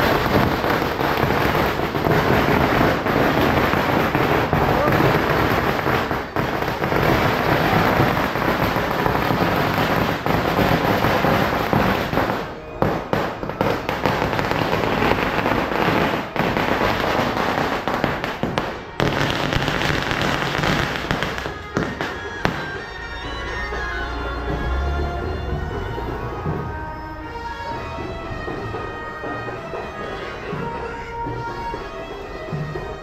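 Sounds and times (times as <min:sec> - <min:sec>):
firecrackers crackling: 0:00.0 - 0:23.0
reedy horn-like music: 0:00.0 - 0:33.0.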